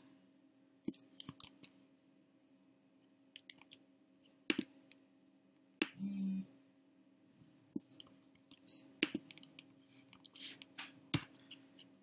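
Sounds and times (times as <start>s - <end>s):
faint steady hum: 0.0s - 12.0s
mouse and keyboard clicks: 3.4s - 3.8s, 4.5s - 5.0s, 7.8s - 11.9s.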